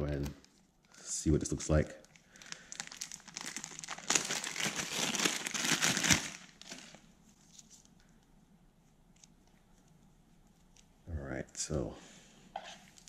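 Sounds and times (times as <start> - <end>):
plastic bag crinkling: 2.0 - 7.8.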